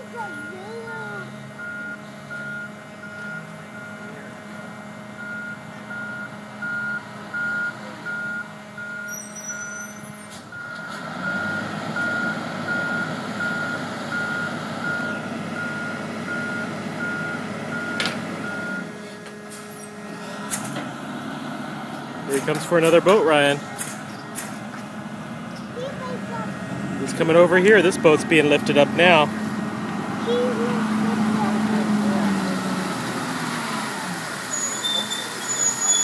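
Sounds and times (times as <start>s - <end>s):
reversing alarm beeping: 0.2s - 0.8s, 1.5s - 4.1s, 5.2s - 19.0s.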